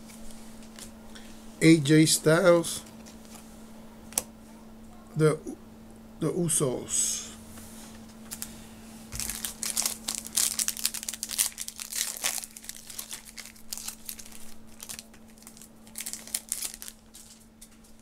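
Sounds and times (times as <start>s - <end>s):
wrapper crinkling and tearing: 8.3s - 8.5s, 9.1s - 18.0s.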